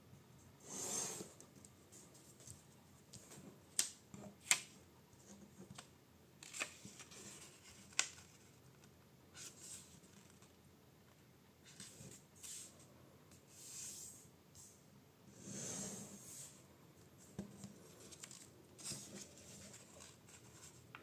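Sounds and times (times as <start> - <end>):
paper creasing ticks and rustles: 17.8 - 21.0.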